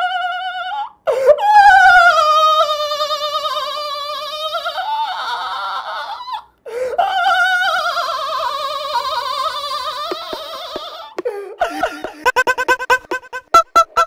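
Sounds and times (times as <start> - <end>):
man laughing with high squeal: 9.3 - 14.0.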